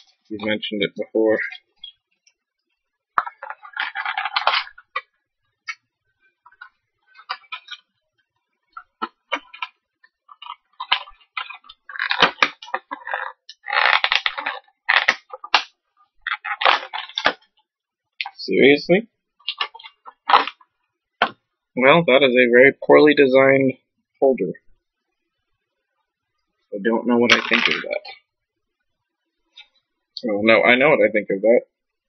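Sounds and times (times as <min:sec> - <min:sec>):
plastic and cardboard crinkling: 0:01.3 - 0:17.6, 0:19.4 - 0:21.4, 0:27.2 - 0:28.2.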